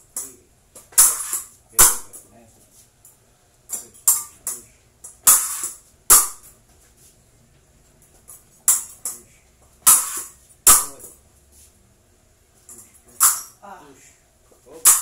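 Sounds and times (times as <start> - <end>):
fencing blades clashing: 0.1 - 2.3, 3.7 - 6.5, 8.2 - 9.2, 9.8 - 11.2, 12.7 - 13.6.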